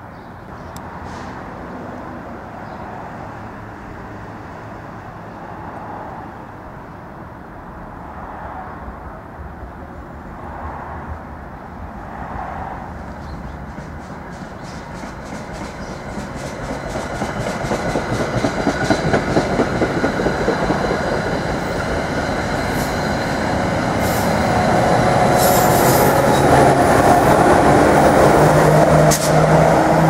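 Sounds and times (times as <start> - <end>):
road traffic rumble: 0.0 - 30.0
train rumble: 11.8 - 30.0.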